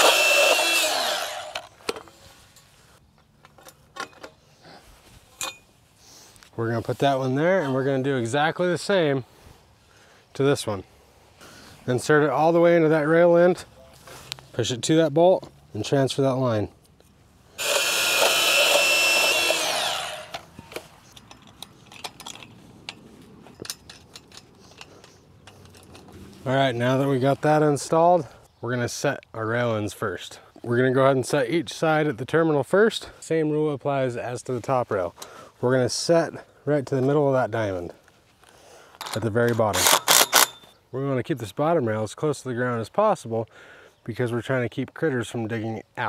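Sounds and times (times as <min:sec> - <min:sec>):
band saw winding down: 0:00.0 - 0:01.7, 0:17.6 - 0:20.4
light metallic clicks and clinks: 0:21.0 - 0:26.1.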